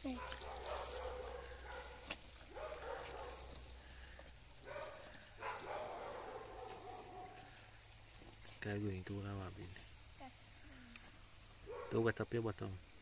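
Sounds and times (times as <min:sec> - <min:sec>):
distant dogs barking: 0:00.0 - 0:07.8, 0:11.6 - 0:12.4
faint high insect chirps: 0:00.0 - 0:13.0.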